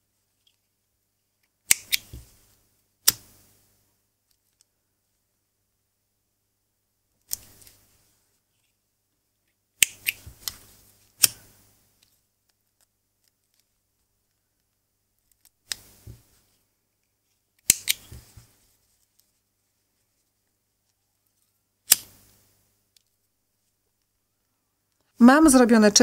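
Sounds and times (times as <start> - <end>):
scissors snipping cord: 11.2 - 11.4, 17.6 - 18.4, 21.9 - 22.2.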